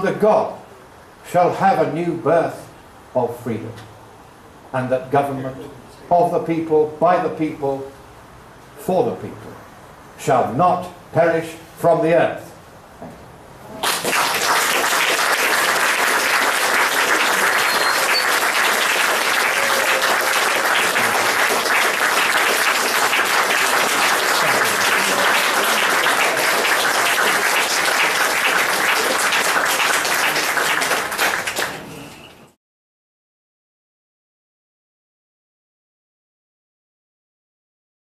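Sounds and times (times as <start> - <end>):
audience applauding: 13.8 - 32.2.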